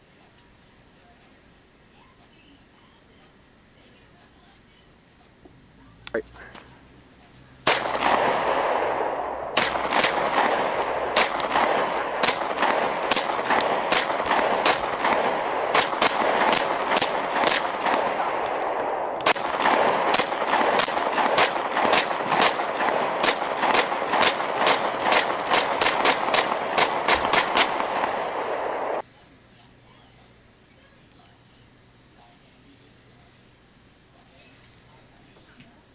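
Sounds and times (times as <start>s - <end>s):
pistol gunshots: 7.6s - 29.0s
steady hiss: 24.5s - 29.0s.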